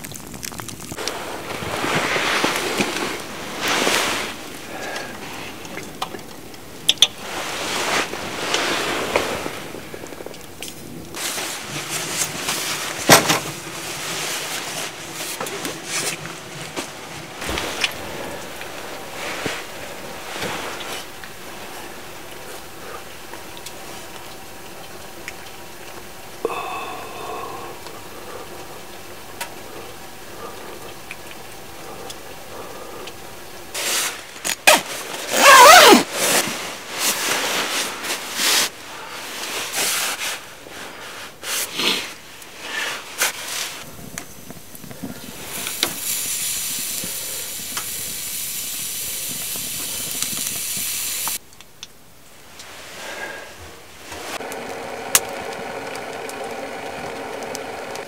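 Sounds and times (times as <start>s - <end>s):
sleeping bag nylon rustling: 0.7s - 24.6s, 33.7s - 48.1s
steady high hiss: 0.8s - 58.0s.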